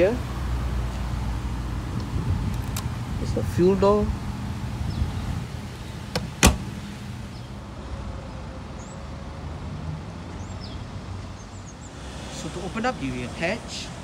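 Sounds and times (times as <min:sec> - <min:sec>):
fuel filler flap clicks: 0:02.0 - 0:02.9, 0:05.7 - 0:06.9.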